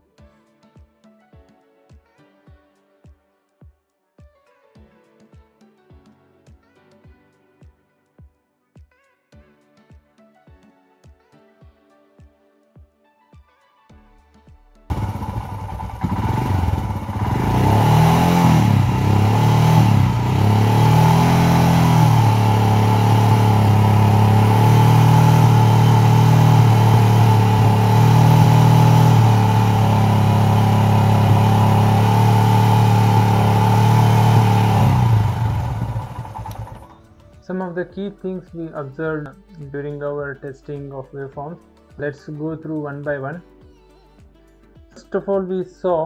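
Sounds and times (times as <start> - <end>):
motorcycle engine revving: 14.9 - 37.0.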